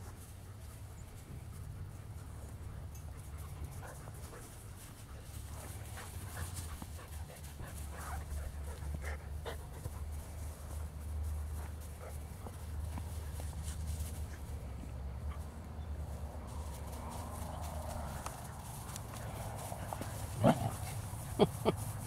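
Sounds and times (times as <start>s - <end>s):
puppies panting: 0.4s - 22.0s.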